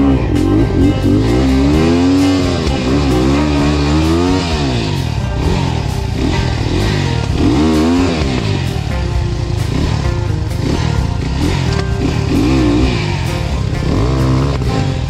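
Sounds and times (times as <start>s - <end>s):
background music: 0.0s - 15.0s
dirt bike engine revving: 0.0s - 15.0s.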